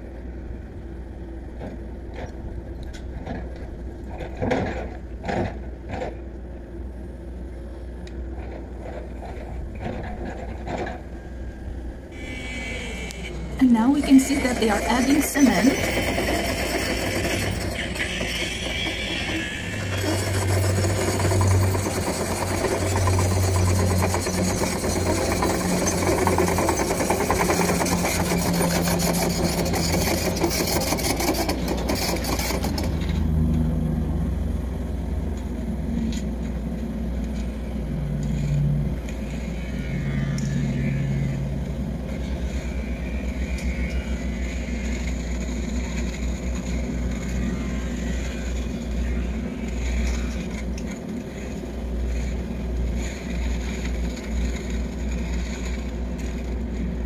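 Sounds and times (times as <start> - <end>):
construction machine engine: 0.0 - 57.0
loud hiss: 12.2 - 13.4.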